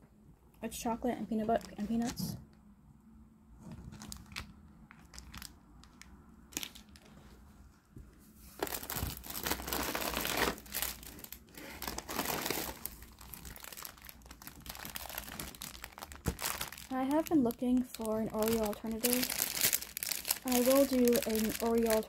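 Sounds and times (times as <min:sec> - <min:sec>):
snack packaging crinkling: 0:03.8 - 0:07.1, 0:08.6 - 0:22.0.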